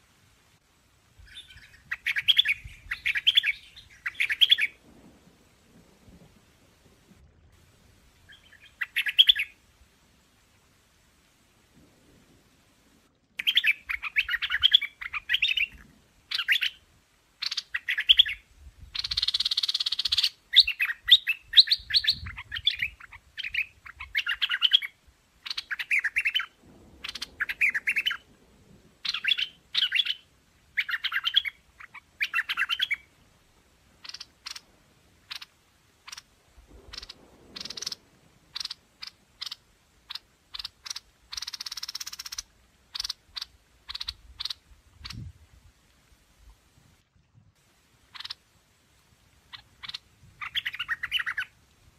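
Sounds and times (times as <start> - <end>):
bird chirping phrases: 1.3 - 4.7
bird sharp ticks: 13.4 - 14.0.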